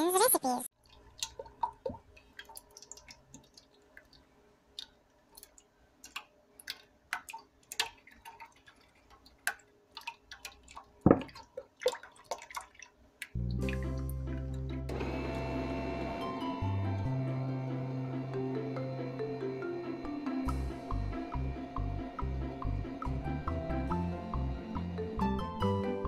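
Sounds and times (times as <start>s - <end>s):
mechanical hum: 14.9s - 26.0s.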